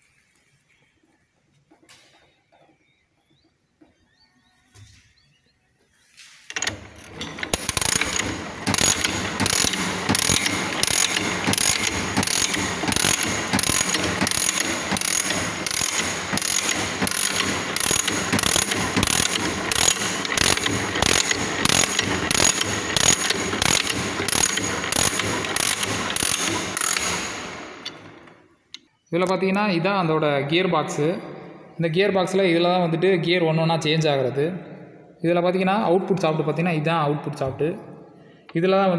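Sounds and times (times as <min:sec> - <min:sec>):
engine gears clattering: 0:06.5 - 0:28.4.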